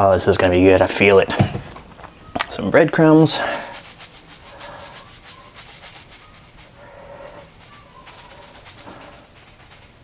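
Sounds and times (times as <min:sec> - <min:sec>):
breadcrumbs rattling in canister: 0:02.5 - 0:10.0.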